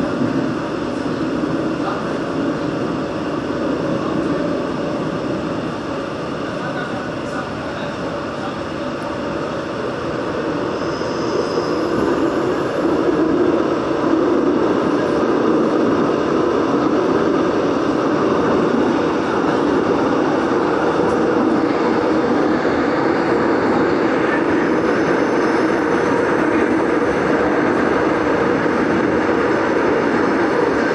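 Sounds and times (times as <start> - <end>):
train wheels rumbling on rails: 0.0 - 30.9.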